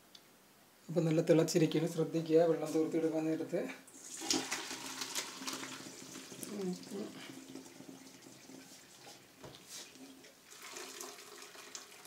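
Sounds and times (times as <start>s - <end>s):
water poured through colander: 3.9s - 12.0s.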